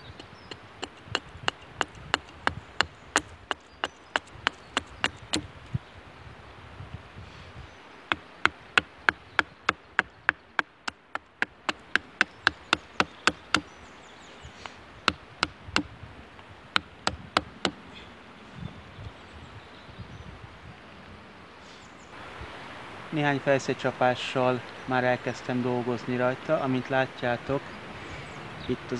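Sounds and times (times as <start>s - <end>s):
hatchet chopping wood: 0.0s - 5.5s, 8.1s - 13.7s, 14.6s - 16.0s, 16.7s - 17.8s.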